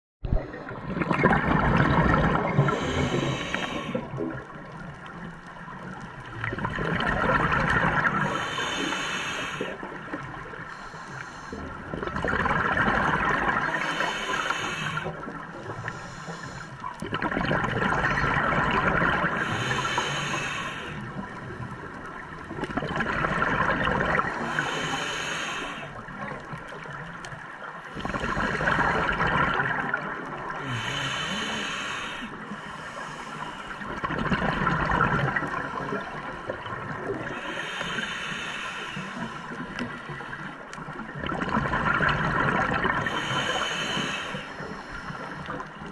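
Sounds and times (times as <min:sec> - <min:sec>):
exhaled bubbles underwater: 0:00.2 - 0:45.9
hissing regulator breaths: 0:02.5 - 0:04.1, 0:08.2 - 0:09.8, 0:10.7 - 0:11.8, 0:13.6 - 0:16.9, 0:19.4 - 0:21.4, 0:24.3 - 0:26.0, 0:30.6 - 0:33.8, 0:37.2 - 0:39.6, 0:43.0 - 0:45.6.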